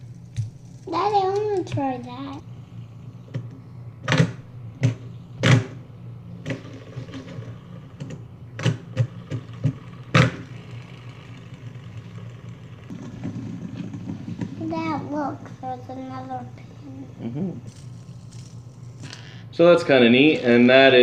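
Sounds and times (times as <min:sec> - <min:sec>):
fidget spinners clicking and knocking: 0:00.0 - 0:02.5, 0:06.4 - 0:19.4
fidget spinner low whir: 0:00.0 - 0:21.0.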